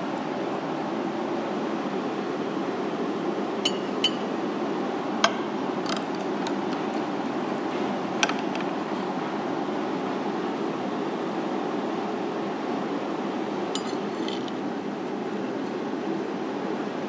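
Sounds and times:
low rush of background noise: 0.0s - 17.0s
spoon clinking on ceramic plate: 3.7s - 4.3s, 13.8s - 14.5s.

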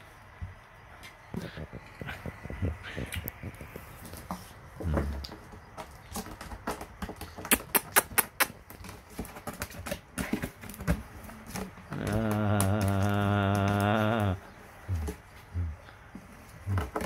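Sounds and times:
sharp clicks and taps: 6.6s - 8.9s.

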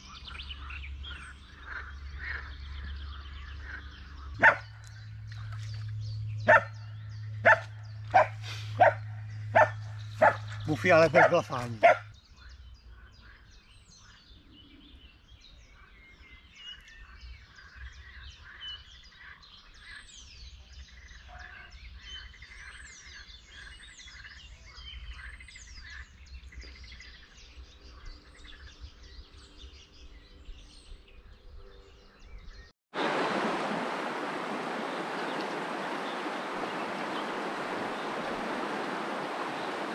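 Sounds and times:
songbirds chirping and whistling: 0.0s - 32.7s, 34.4s - 39.9s
steady rushing hiss: 33.0s - 39.9s.

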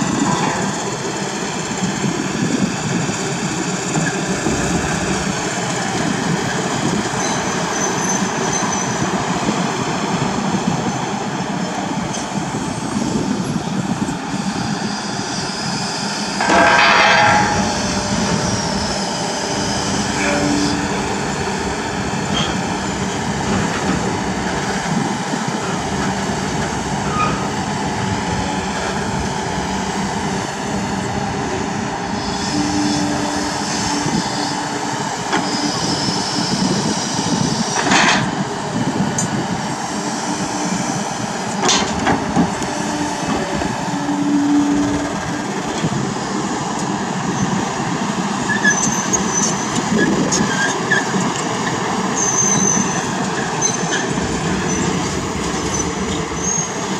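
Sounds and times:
excavator diesel engine running: 0.0s - 56.9s
high hydraulic squeals: 3.9s - 9.1s, 14.3s - 23.8s, 27.0s - 27.7s, 32.1s - 37.8s, 48.5s - 51.4s, 52.1s - 56.9s
sharp metallic knocks: 16.4s - 21.2s.

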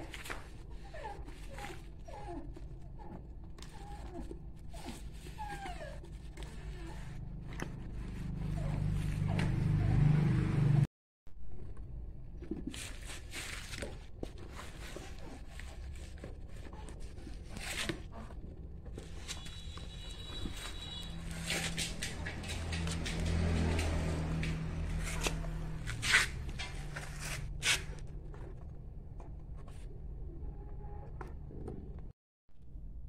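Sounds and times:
rubber mould rustling and scraping: 11.6s - 32.1s.

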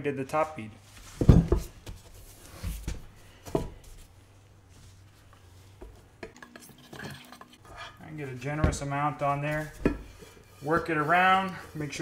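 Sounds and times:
wheel thumping on a workbench: 1.2s - 2.0s, 8.6s - 9.0s.

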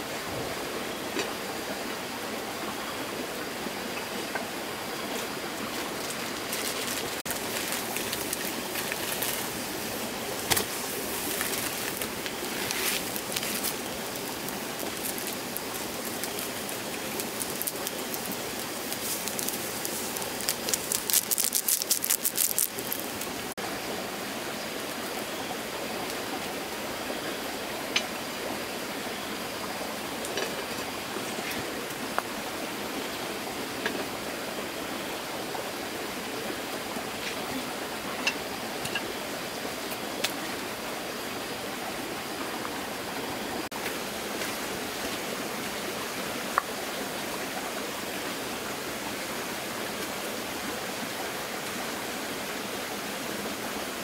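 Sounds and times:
water rushing: 0.0s - 54.0s
dense crackling: 6.1s - 23.6s.

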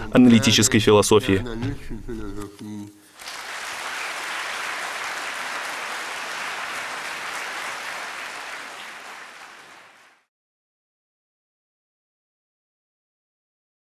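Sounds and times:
large audience applauding: 3.2s - 10.3s.

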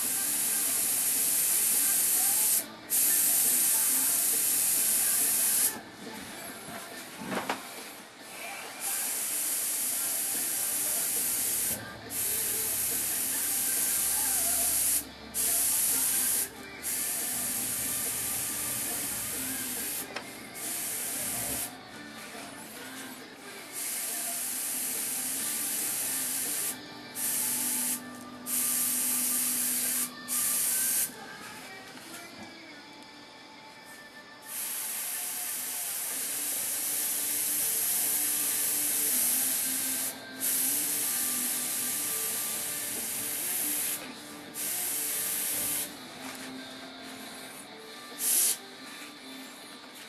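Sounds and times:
airbrush hissing bursts: 0.0s - 5.8s, 8.8s - 21.7s, 23.7s - 31.1s, 34.5s - 45.9s, 48.1s - 48.6s.

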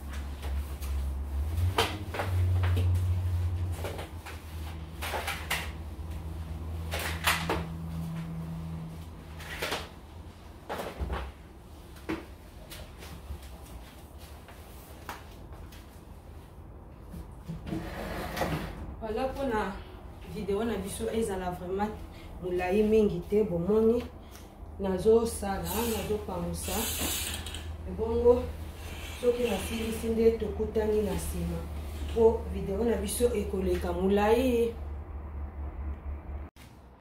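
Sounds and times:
low rumble: 34.2s - 36.6s.

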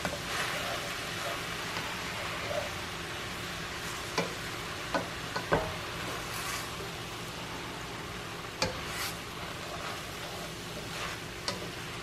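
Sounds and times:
food sizzling in a skillet: 0.0s - 12.0s
spatula knocking against pan: 4.2s - 5.8s.

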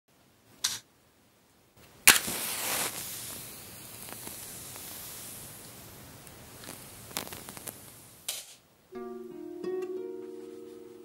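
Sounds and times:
match striking and hissing: 0.6s - 0.8s, 2.0s - 8.6s.

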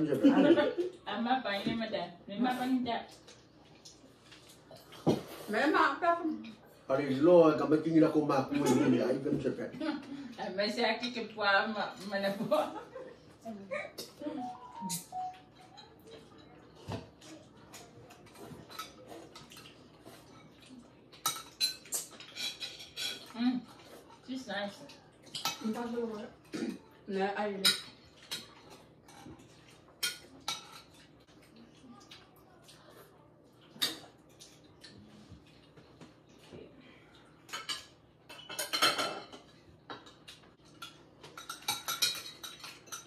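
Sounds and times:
cutlery clinking against plates: 13.9s - 24.2s, 25.2s - 26.9s, 27.6s - 31.4s, 33.5s - 36.4s, 37.4s - 43.0s.

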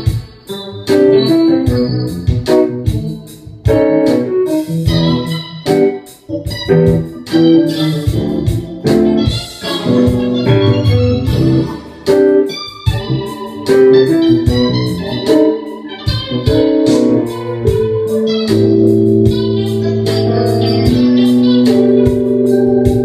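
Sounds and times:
electronic keyboard chords: 0.0s - 23.0s
steady bass note: 8.1s - 11.9s, 12.9s - 23.0s.

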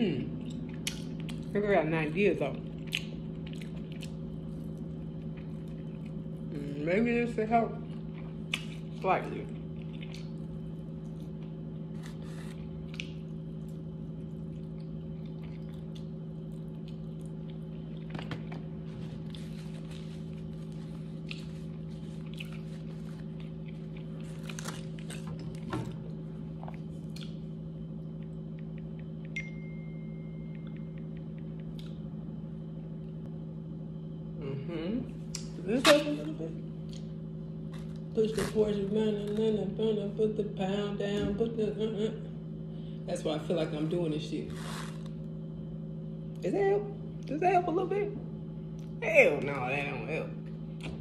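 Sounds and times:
low hum: 0.0s - 51.0s
crunchy bites and chewing: 7.9s - 18.2s, 18.8s - 29.2s.

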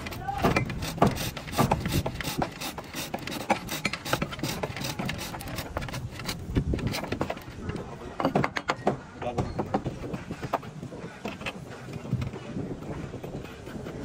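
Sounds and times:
bow drill rasping in wood: 0.0s - 7.6s.

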